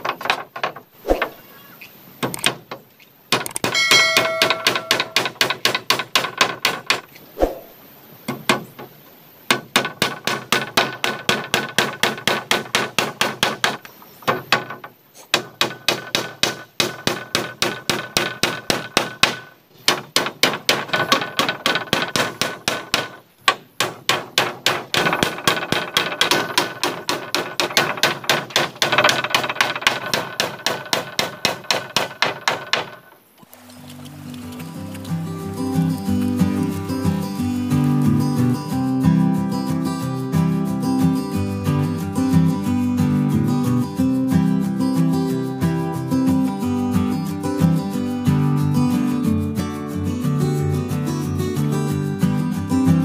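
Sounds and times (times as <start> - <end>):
hammer striking nails: 2.2 - 7.1, 9.5 - 33.2.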